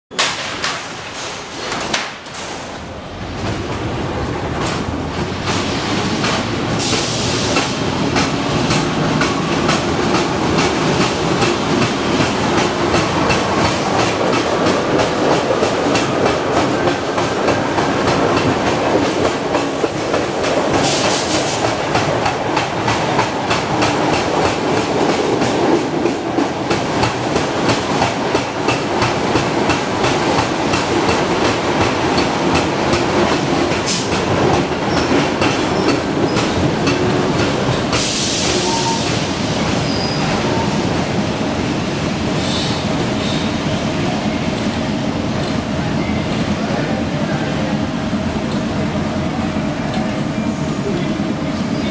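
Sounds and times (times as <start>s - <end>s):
wheels clacking over rail joints: 0.1s - 40.7s
train rumbling through tunnel: 0.1s - 51.9s.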